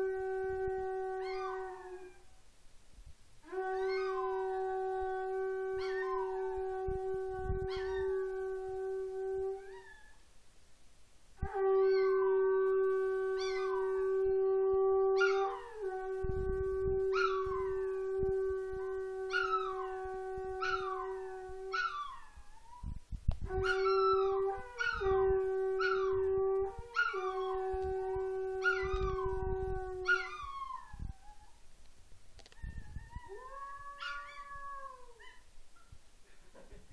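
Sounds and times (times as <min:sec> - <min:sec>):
conch shell trumpet notes: 0:00.0 - 0:02.1, 0:03.4 - 0:09.8, 0:11.4 - 0:21.8, 0:23.4 - 0:30.4
dog howling: 0:03.6 - 0:10.2, 0:13.3 - 0:14.3, 0:15.0 - 0:22.9, 0:23.6 - 0:31.6, 0:32.5 - 0:35.4.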